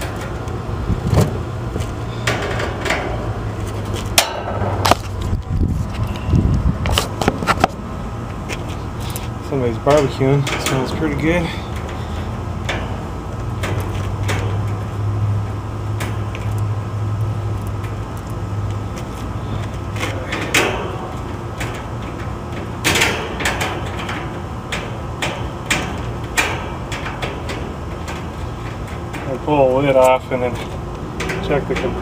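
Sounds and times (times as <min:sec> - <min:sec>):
metallic clicks and scrapes: 0:08.4 - 0:32.0.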